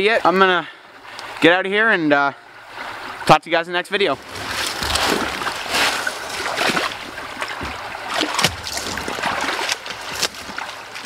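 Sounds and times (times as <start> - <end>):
water running and splashing: 4.0 - 11.0.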